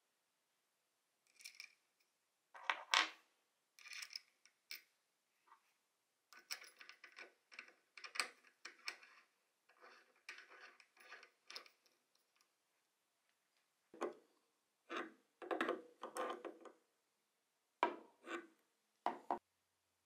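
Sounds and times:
metal parts clicking and scraping: 0:06.4 - 0:11.9.

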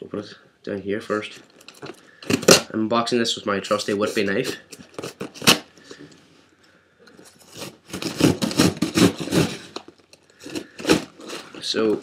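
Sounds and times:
knife cutting cardboard box: 0:04.0 - 0:05.6, 0:07.4 - 0:12.0.

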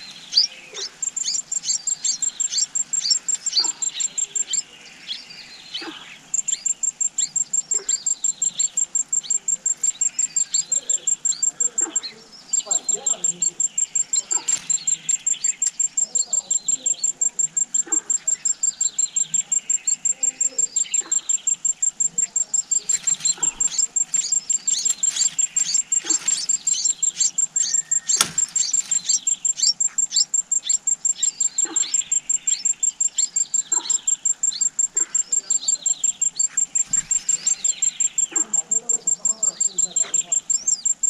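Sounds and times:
nestlings chirping: 0:00.0 - 0:41.0
sharp click: 0:28.1 - 0:29.0.

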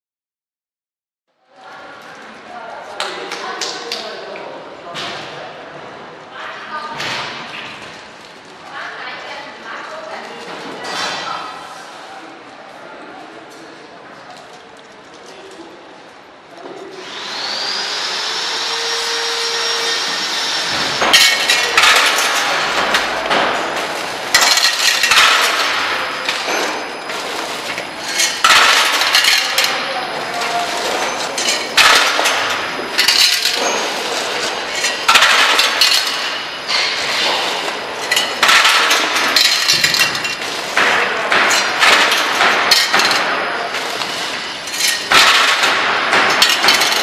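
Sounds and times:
metal clanks and clinks: 0:21.0 - 0:47.0.

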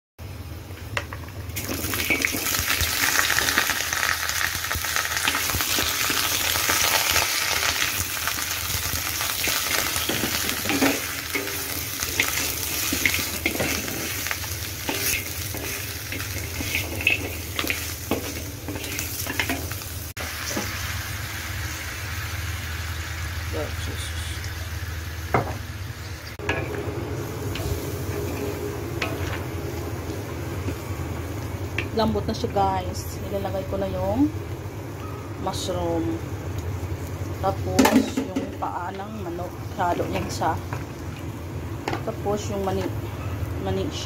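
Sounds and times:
meat sizzling in hot oil: 0:01.5 - 0:26.4
wooden spatula scraping wok: 0:09.3 - 0:19.8.

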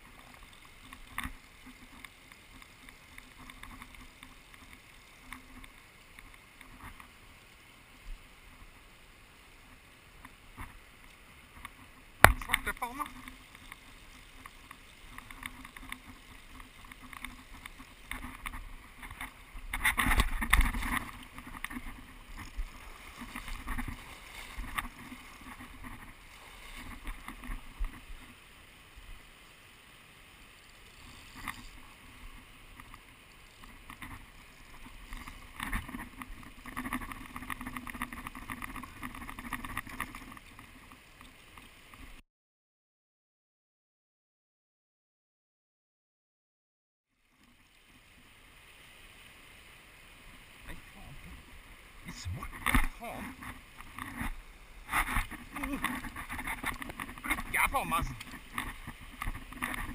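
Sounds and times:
river rushing over stones: 0:00.0 - 0:42.0, 0:48.0 - 0:59.9.

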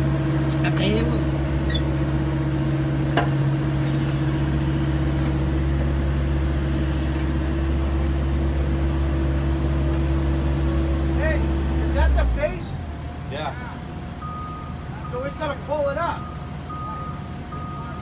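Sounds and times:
diesel engines droning: 0:00.0 - 0:18.0.

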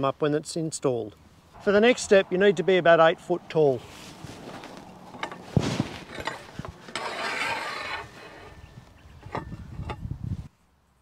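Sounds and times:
metal scraping: 0:01.5 - 0:10.1
metal knocks and clanks: 0:05.1 - 0:10.0.

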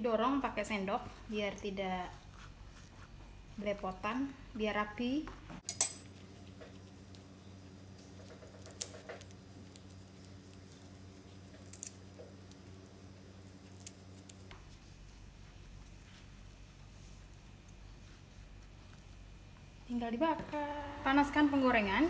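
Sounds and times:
faint steady hum: 0:00.0 - 0:22.0
leaf crinkling: 0:06.0 - 0:19.7.

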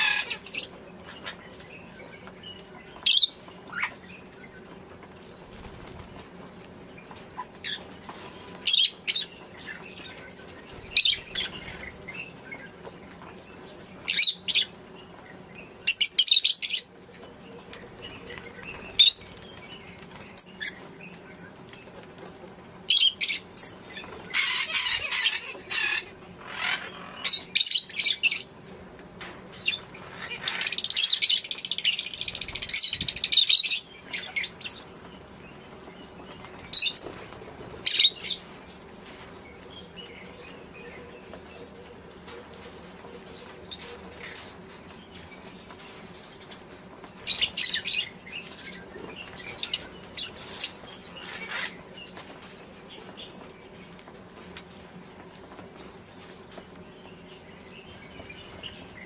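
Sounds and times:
lovebirds chirping: 0:00.0 - 0:28.7, 0:29.5 - 0:59.0.

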